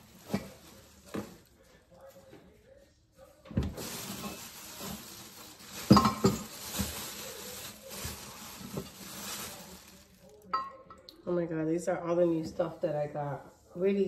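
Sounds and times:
wrapping rustling and crinkling: 0.0s - 10.5s
decorations knocking and clinking: 3.5s - 9.5s.

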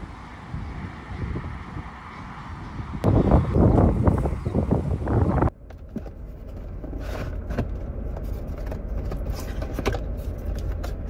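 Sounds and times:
low rumble inside a car: 5.3s - 11.0s.

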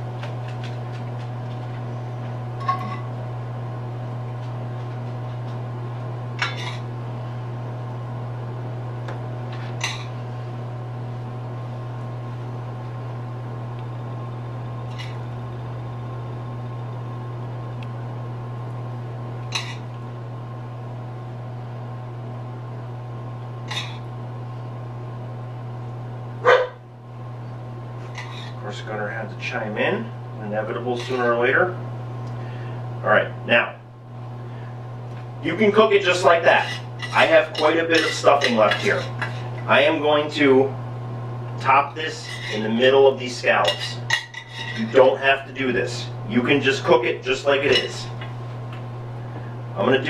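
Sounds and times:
steady low hum: 0.0s - 50.0s
metal spoon clinking on pans: 36.6s - 39.4s, 43.7s - 45.0s.

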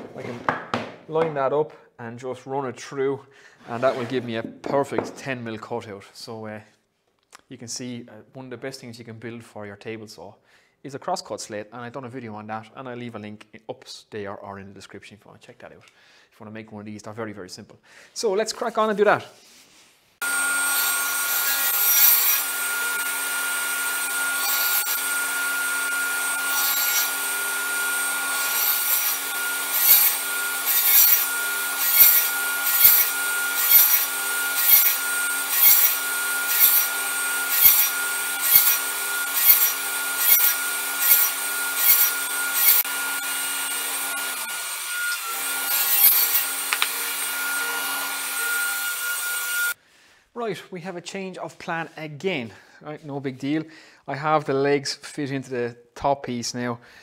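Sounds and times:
saw cutting strokes in wood: 20.2s - 49.8s
table saw whining: 20.2s - 49.8s.

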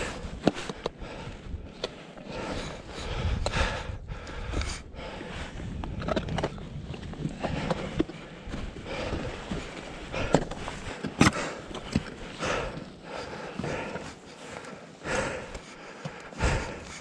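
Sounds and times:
person breathing heavily: 0.0s - 6.2s, 7.3s - 17.0s.

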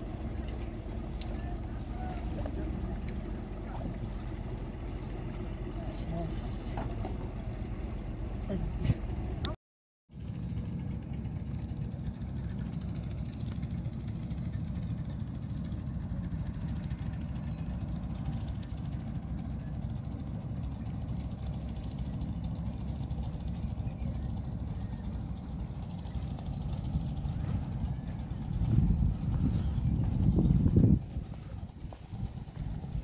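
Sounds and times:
wind buffeting microphone: 0.0s - 9.6s, 23.7s - 33.0s.

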